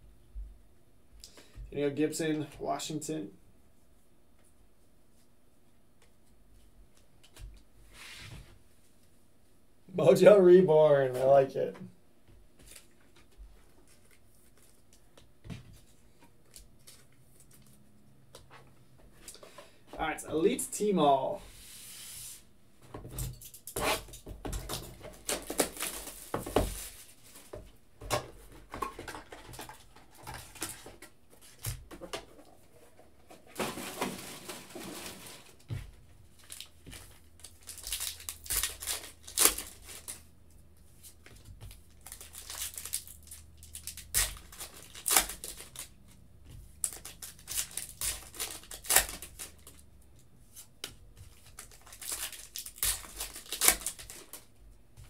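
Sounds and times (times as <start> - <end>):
card wrappers tearing and crinkling: 25.1 - 27.2, 36.4 - 40.3, 41.0 - 46.0, 46.8 - 49.8, 51.3 - 54.5.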